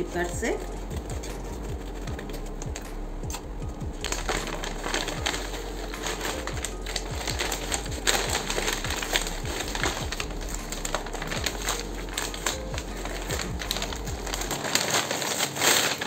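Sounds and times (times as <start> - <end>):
paper bag crinkling and tearing: 4.0 - 16.0.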